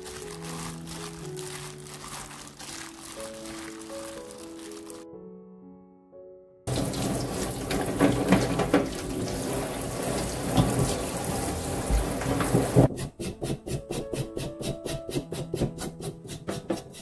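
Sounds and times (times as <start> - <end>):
roots knocking and scraping: 0.0 - 5.0, 6.8 - 12.9
faucet spray running into sink: 6.7 - 12.9.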